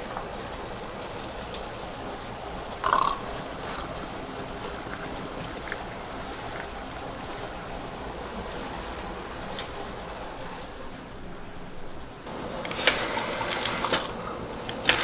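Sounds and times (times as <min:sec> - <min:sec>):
liquid pouring into a cup: 0:02.8 - 0:03.9.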